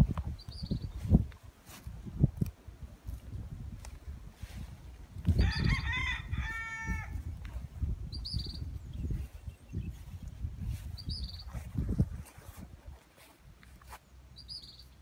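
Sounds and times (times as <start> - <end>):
small bird chirping: 0.3 - 1.2, 8.0 - 11.7, 13.9 - 15.0
rooster crowing: 5.4 - 7.2.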